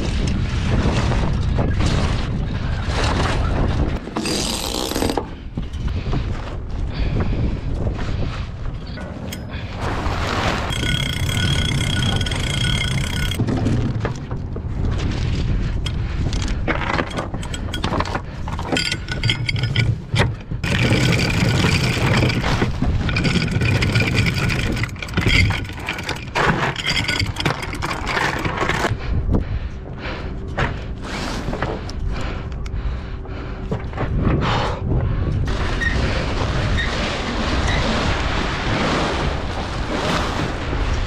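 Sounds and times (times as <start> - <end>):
wind buffeting microphone: 0.0 - 4.3, 5.0 - 31.0, 31.6 - 41.0
metallic ratcheting of windlass: 3.2 - 5.9, 10.7 - 14.4, 15.8 - 29.0.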